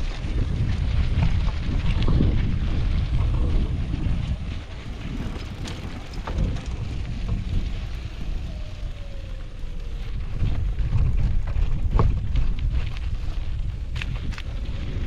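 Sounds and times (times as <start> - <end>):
bicycle clicks and rattles: 0.0 - 15.0
wind buffeting microphone: 0.0 - 15.0.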